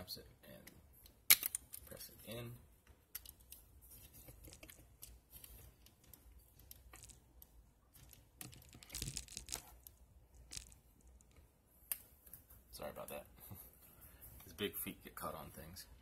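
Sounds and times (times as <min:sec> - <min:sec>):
plastic toy parts clicking: 0:01.0 - 0:01.9.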